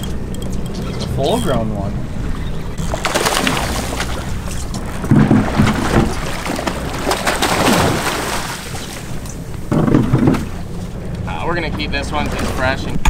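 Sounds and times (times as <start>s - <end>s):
boat engine running: 0.0s - 13.0s
water noise: 0.0s - 13.0s
wind: 0.0s - 13.0s
low thuds: 9.4s - 11.9s
knocks: 9.7s - 10.5s.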